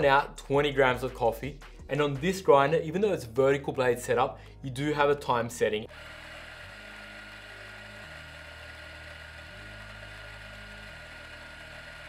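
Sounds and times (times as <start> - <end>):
electric coffee grinder whirring: 5.9 - 12.0.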